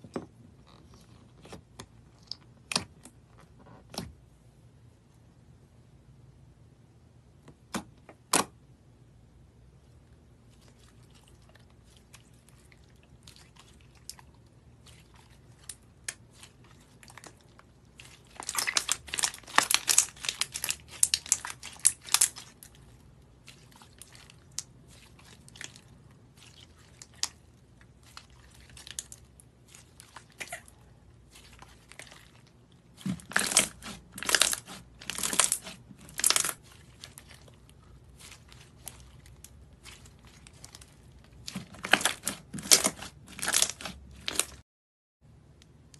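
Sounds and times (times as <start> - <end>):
slime crackling and popping: 18.0 - 22.7, 32.9 - 44.6.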